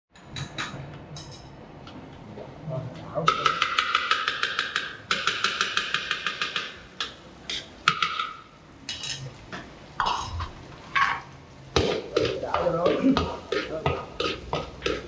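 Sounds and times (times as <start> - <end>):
utensils clattering on cookware: 0.2 - 1.6, 3.3 - 9.3.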